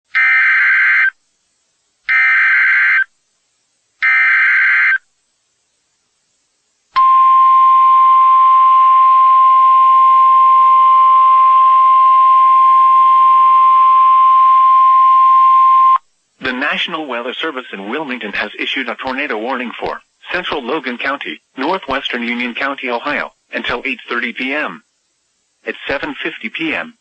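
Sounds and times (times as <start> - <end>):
long steady high alarm tone: 0.1 - 1.2, 2.1 - 3.1, 4.0 - 5.0, 7.0 - 16.0.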